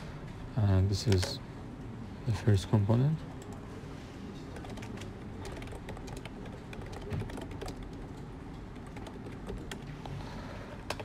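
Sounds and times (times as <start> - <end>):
low background noise: 0.0 - 11.0
computer keyboard typing: 4.5 - 9.9.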